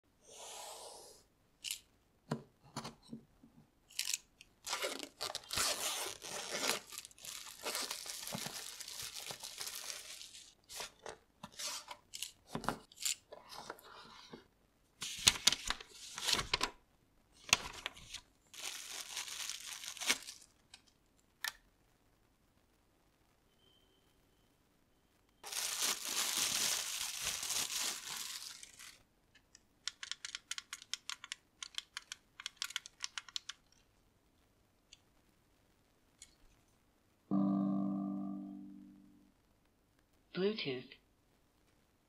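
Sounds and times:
packaging tearing and crinkling: 0:03.9 - 0:11.0, 0:17.4 - 0:20.5, 0:25.4 - 0:29.0.

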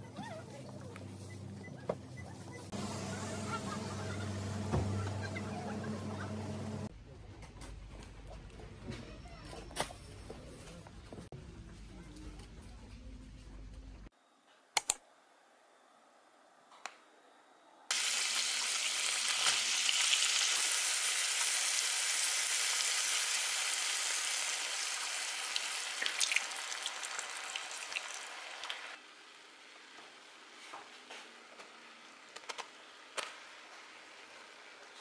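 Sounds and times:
food sizzling in a frying pan: 0:17.9 - 0:29.0.

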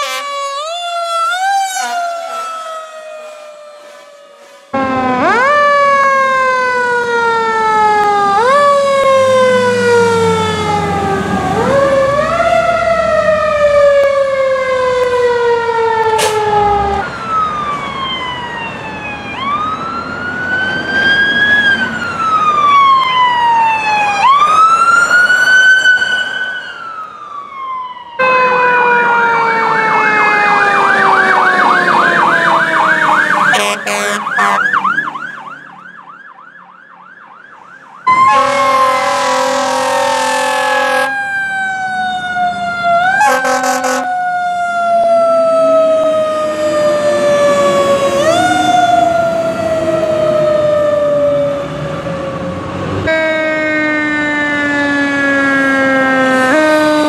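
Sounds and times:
horn blare: 0:00.0 - 0:00.6, 0:01.7 - 0:05.5, 0:32.5 - 0:35.4, 0:38.1 - 0:41.3, 0:43.1 - 0:44.2, 0:53.1 - 0:53.6
emergency vehicle sirens: 0:00.0 - 0:57.0.

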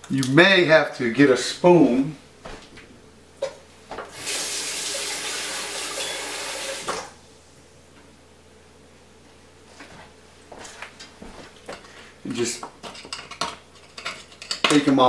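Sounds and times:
kitchen tap running: 0:04.1 - 0:07.2.

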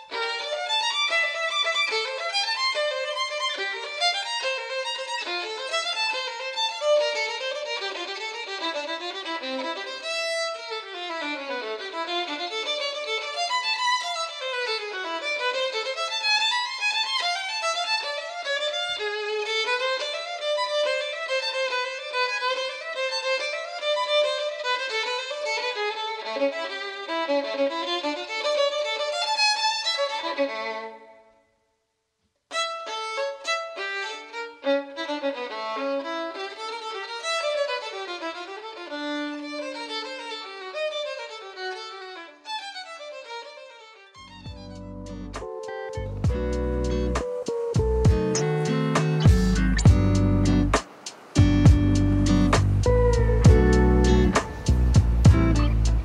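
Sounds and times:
violin music: 0:00.0 - 0:31.4, 0:32.5 - 0:56.0.

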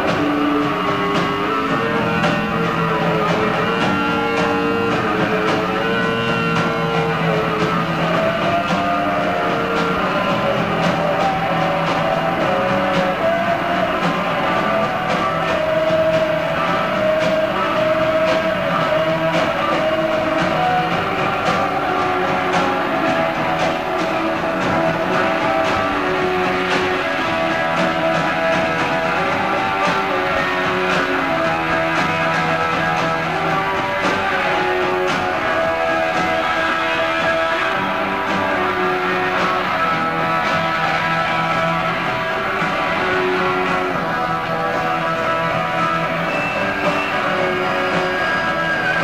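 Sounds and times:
drum hits: 0:00.0 - 0:49.0
electric guitars: 0:00.0 - 0:49.0.

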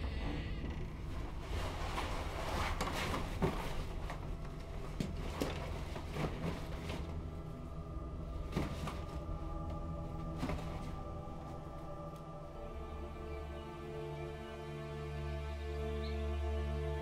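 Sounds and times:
rustling: 0:00.0 - 0:12.3
low steady drone: 0:00.0 - 0:17.0.

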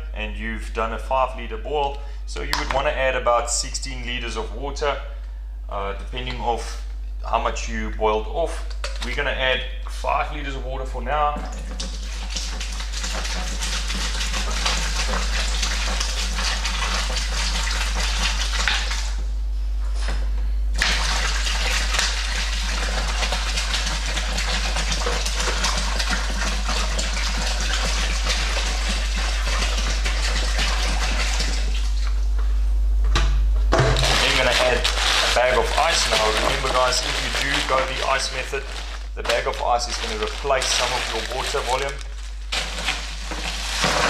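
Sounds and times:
water gushing into plastic bucket: 0:11.1 - 0:19.2, 0:20.8 - 0:32.3, 0:33.8 - 0:44.0.

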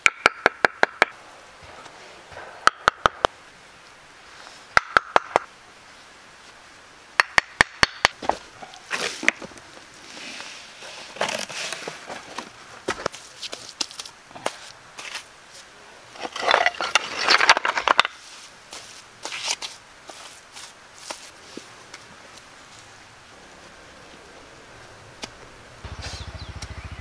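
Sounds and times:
rustling: 0:08.2 - 0:26.3
scraping: 0:16.1 - 0:21.4.

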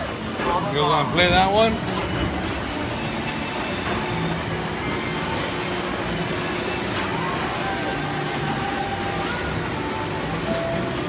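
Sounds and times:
electronic game machine tones: 0:01.7 - 0:11.0.

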